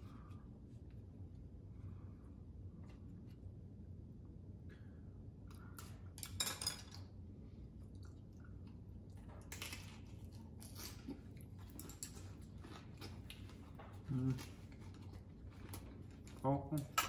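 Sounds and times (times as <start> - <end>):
chewing with crisp crunches: 7.7 - 17.0.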